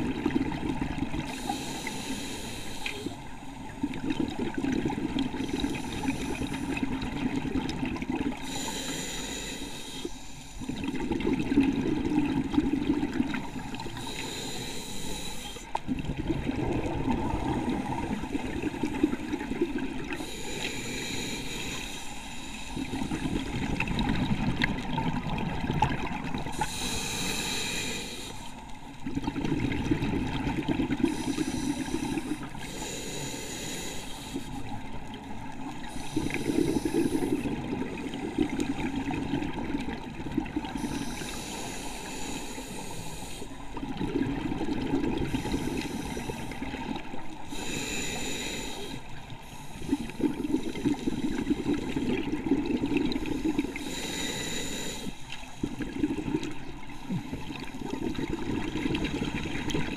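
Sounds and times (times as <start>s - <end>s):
scuba regulator hissing inhale: 1.3s - 3.7s, 5.4s - 7.0s, 8.4s - 10.8s, 13.3s - 15.8s, 17.4s - 23.7s, 26.5s - 28.6s, 30.9s - 34.8s, 35.7s - 38.8s, 40.7s - 43.7s, 45.1s - 52.2s, 53.1s - 57.7s
bubbling exhale underwater: 10.6s - 14.4s, 15.9s - 20.4s, 29.0s - 32.4s, 43.8s - 48.1s, 49.8s - 54.6s, 55.6s - 59.9s.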